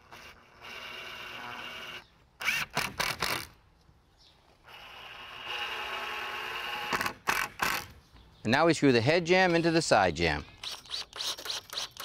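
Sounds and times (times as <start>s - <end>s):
drill driving screws into wood: 0.0s - 3.6s, 4.7s - 7.9s, 10.6s - 12.0s.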